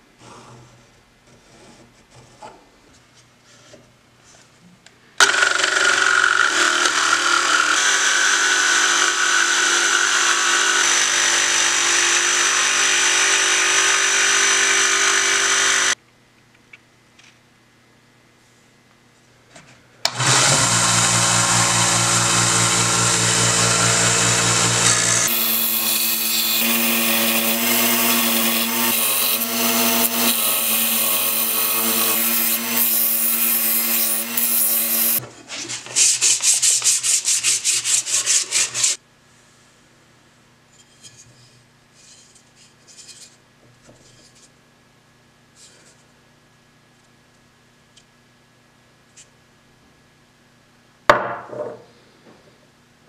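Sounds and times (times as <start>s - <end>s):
belt sander running: 5.2s - 16.0s, 20.1s - 35.2s.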